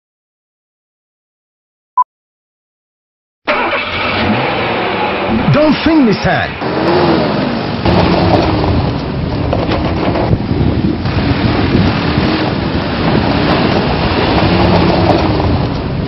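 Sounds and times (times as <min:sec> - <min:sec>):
pickup truck engine: 0:03.5 - 0:16.0
wind rushing on microphone: 0:06.6 - 0:16.0.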